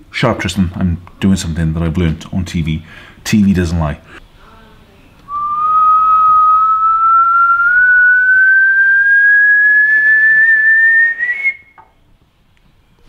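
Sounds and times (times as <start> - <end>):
man whistling long note: 5.3 - 11.8.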